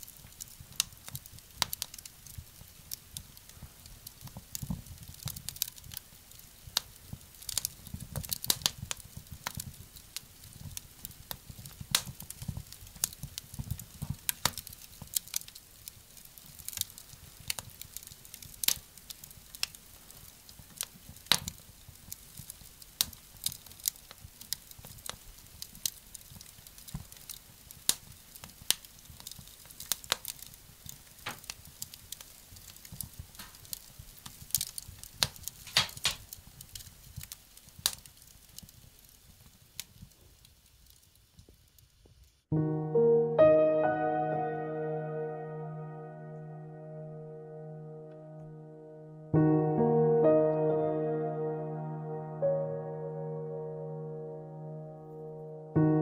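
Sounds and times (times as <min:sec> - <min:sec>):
wood fire crackling: 0:00.0 - 0:42.6.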